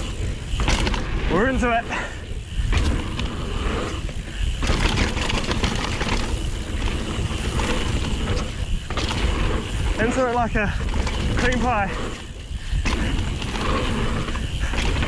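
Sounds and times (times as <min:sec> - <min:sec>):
bike clattering and rattling: 0:00.0 - 0:15.0
bike tyres rolling over rough ground: 0:00.0 - 0:15.0
wind buffeting microphone: 0:00.0 - 0:15.0.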